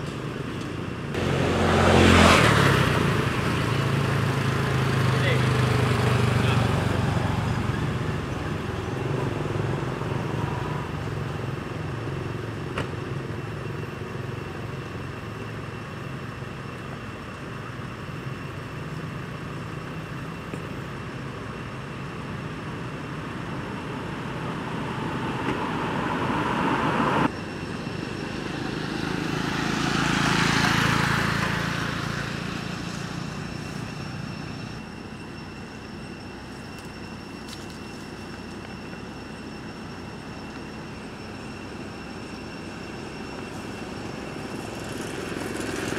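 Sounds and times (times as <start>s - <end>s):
vehicle engine drone: 0.0s - 45.9s
vehicle passing by: 1.2s - 11.3s, 23.1s - 27.3s, 28.2s - 34.8s.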